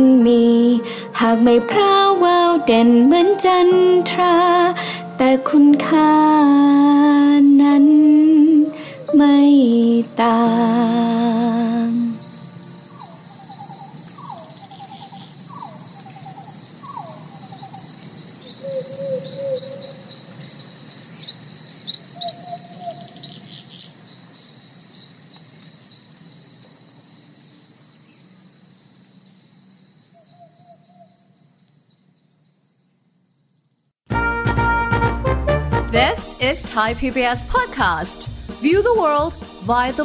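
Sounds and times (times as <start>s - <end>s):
crickets chirring: 0.0s - 34.0s
lower chirping calls: 11.5s - 28.3s, 29.2s - 31.7s.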